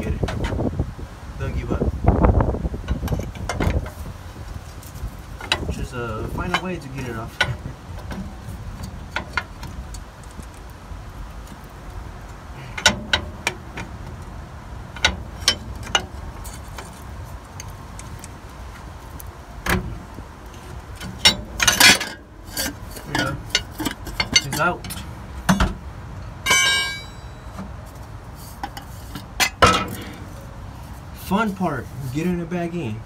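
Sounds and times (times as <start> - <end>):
metal clanks: 6.4 - 9.8, 12.6 - 14.2, 14.9 - 17.0, 20.5 - 27.8, 28.6 - 30.6
metal clinks and knocks: 20.9 - 30.6.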